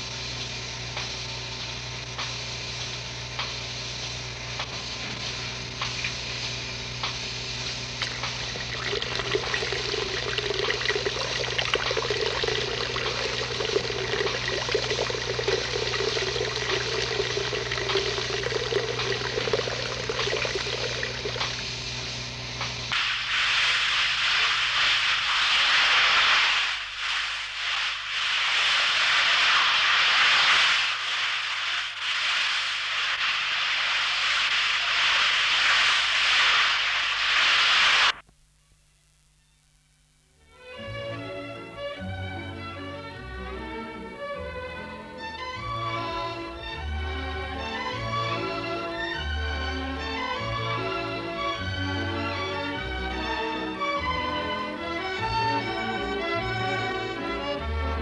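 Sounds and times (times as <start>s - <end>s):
workshop machinery humming: 0.0s - 25.4s
stick welding hiss: 0.0s - 38.2s
rushing noise: 22.9s - 38.2s.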